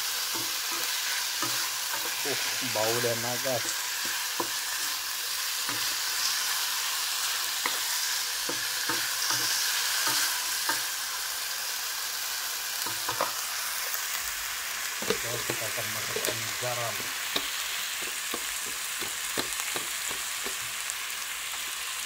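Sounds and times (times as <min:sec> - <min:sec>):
food sizzling in hot oil: 0:00.0 - 0:22.0
wooden spatula scraping wok: 0:00.2 - 0:06.5, 0:15.0 - 0:20.7.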